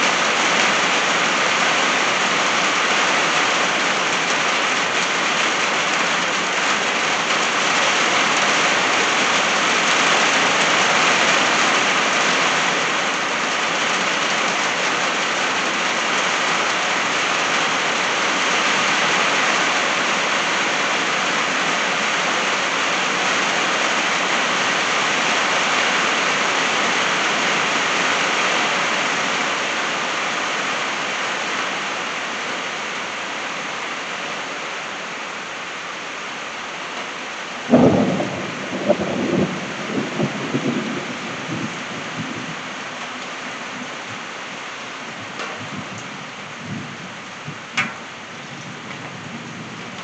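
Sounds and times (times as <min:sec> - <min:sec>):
rain on a tin roof: 0:00.0 - 0:50.0
thunder crack rumbling: 0:37.7 - 0:42.7.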